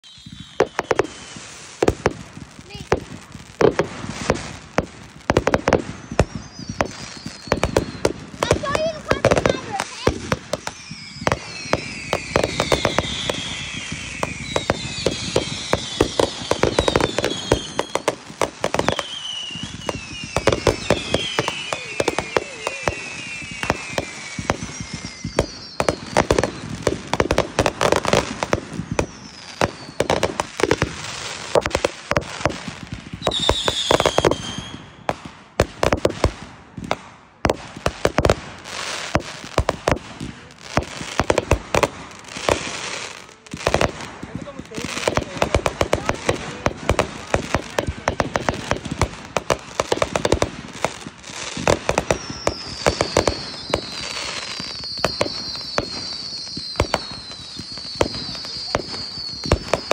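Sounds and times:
falling firework whistles: 0:00.0 - 0:59.9
firework bangs and crackles: 0:00.0 - 0:59.9.

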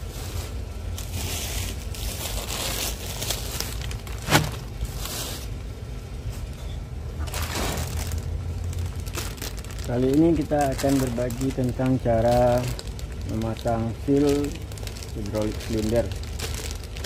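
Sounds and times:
plastic packaging crinkling: 0:00.0 - 0:05.6, 0:07.2 - 0:17.0
steady low hum: 0:00.0 - 0:17.0.

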